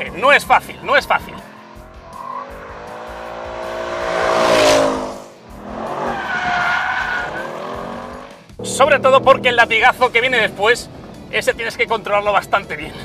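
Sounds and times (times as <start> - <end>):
car engine revving: 0.0 - 11.6
tyres squealing: 5.6 - 9.7.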